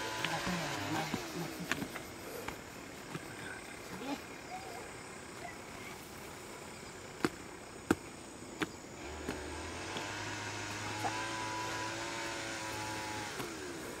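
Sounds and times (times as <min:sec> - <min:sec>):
motor drone: 0:09.0 - 0:14.0.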